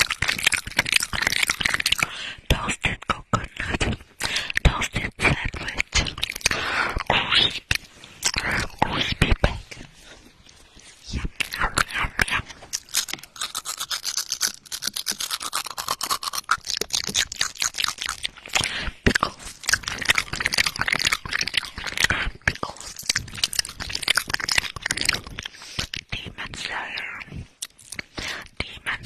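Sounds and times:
crackly clicks and rubbing: 0:00.0 - 0:29.0.

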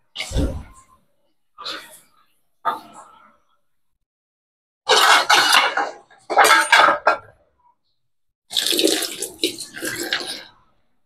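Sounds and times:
pot boiling and bubbling: 0:08.5 - 0:10.6.

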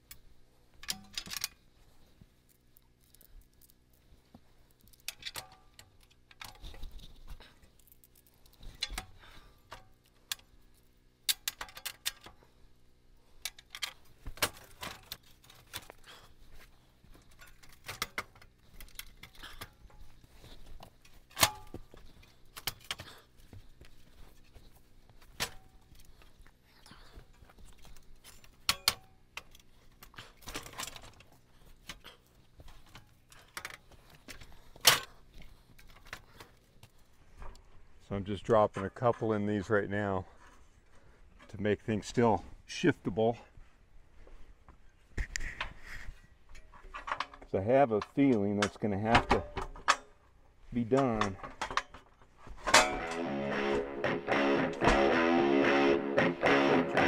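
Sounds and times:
metallic clinks and clanks: 0:00.8 - 0:01.6, 0:51.0 - 0:53.7.

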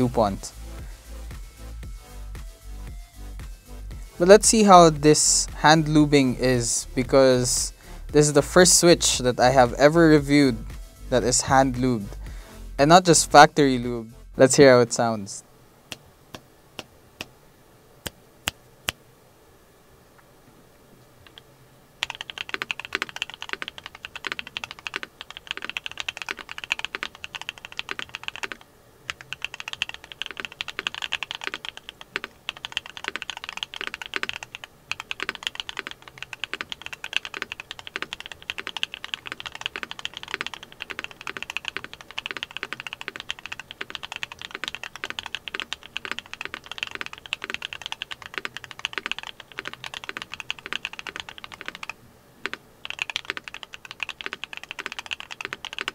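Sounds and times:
typing on mechanical keyboard: 0:22.0 - 0:55.9.

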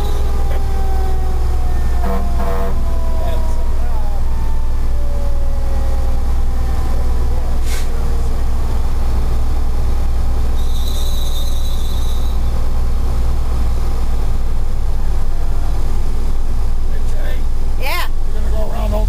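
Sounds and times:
road noise inside cab: 0:00.0 - 0:19.0
truck engine rumble: 0:00.0 - 0:19.0
high-pitched squeal: 0:10.6 - 0:12.6.

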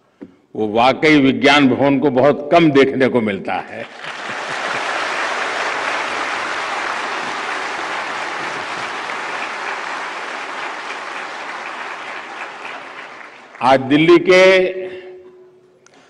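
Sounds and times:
large audience applauding: 0:03.9 - 0:13.9.

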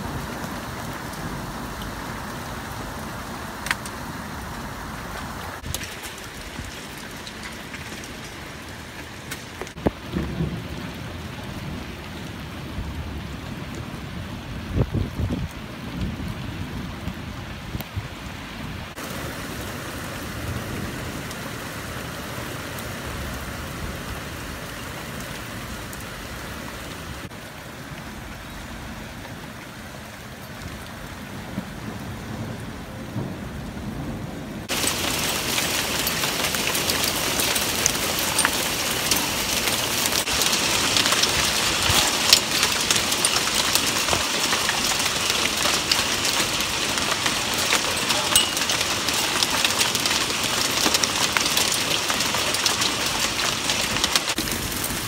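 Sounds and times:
heavy rain: 0:00.0 - 0:55.0
raindrops ticking on a surface: 0:00.0 - 0:55.0
thunder rumble: 0:09.7 - 0:22.0, 0:30.6 - 0:55.0.

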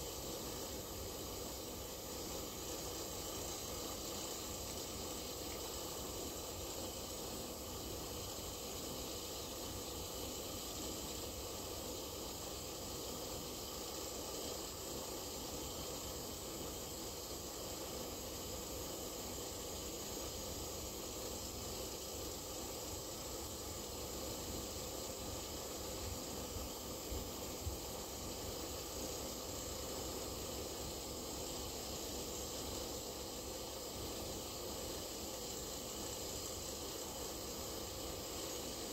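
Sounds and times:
air and powder hissing through hose: 0:00.0 - 0:38.9.

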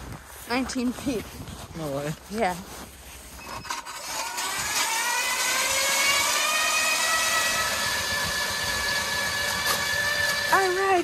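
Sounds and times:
power ice auger whining: 0:03.4 - 0:11.0.

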